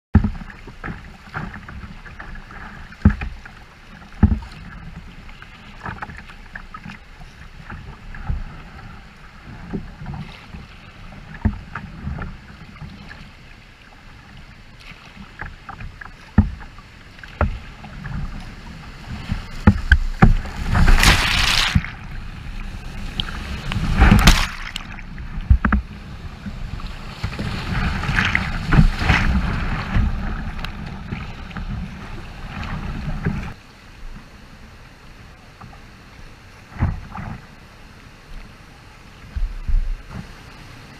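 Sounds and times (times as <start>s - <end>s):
water slapping against kayak hull: 0.2s - 13.3s, 14.8s - 33.6s
whitewater rushing and splashing: 0.2s - 34.1s.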